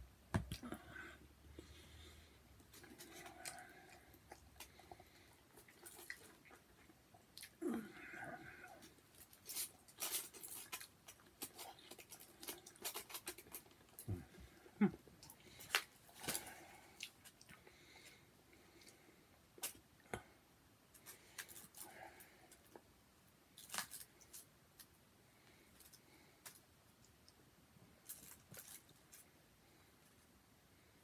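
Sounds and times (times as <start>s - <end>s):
person chewing: 2.6s - 17.7s.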